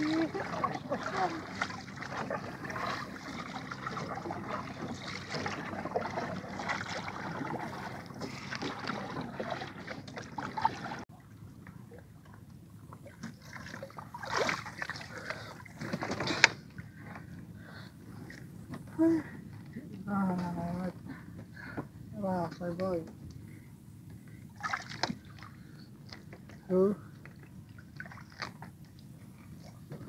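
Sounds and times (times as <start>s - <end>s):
water splashes: 0.0s - 17.0s, 24.6s - 30.0s
water lapping against canoe: 0.0s - 18.9s, 24.3s - 30.0s.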